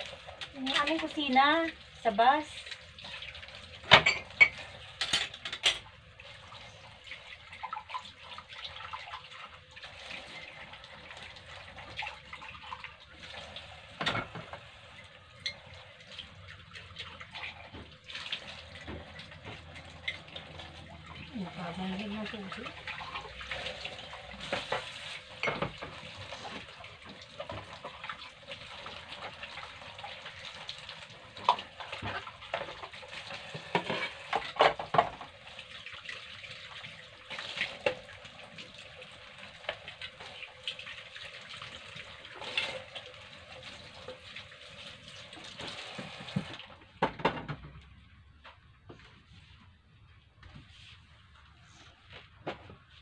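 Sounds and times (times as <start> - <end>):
plates clinking: 3.9 - 5.9.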